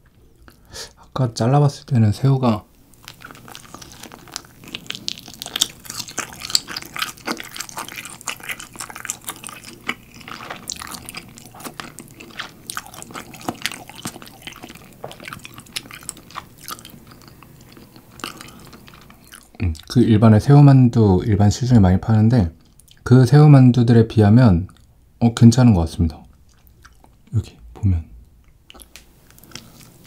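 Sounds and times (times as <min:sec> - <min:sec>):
wet chewing with sticky clicks: 0:02.9 - 0:20.0, 0:26.3 - 0:27.3, 0:28.4 - 0:30.0.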